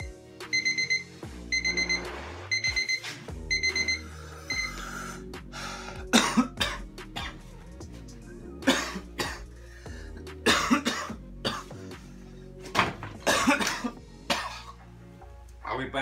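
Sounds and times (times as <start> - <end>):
background music: 0.0 - 16.0
man coughing hard: 6.1 - 7.4, 8.6 - 9.5, 10.4 - 11.8, 13.2 - 14.8.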